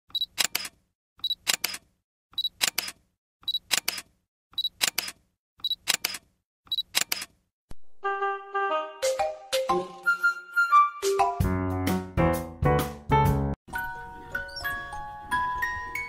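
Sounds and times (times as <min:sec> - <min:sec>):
camera shutter clicks: 0:00.4 - 0:00.8, 0:01.4 - 0:01.8, 0:02.6 - 0:03.0, 0:03.7 - 0:04.1, 0:04.8 - 0:05.2, 0:05.8 - 0:06.2, 0:06.9 - 0:07.3.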